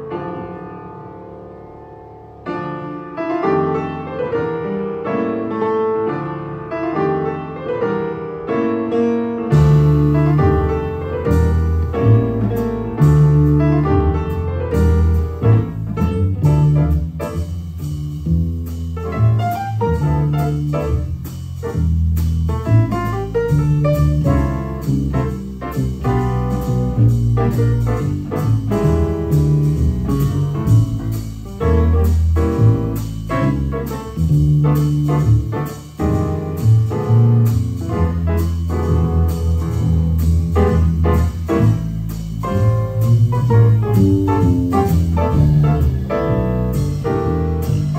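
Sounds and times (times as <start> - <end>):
slow jazz piano ballad: 0.0 - 47.9
walking double bass: 0.0 - 47.9.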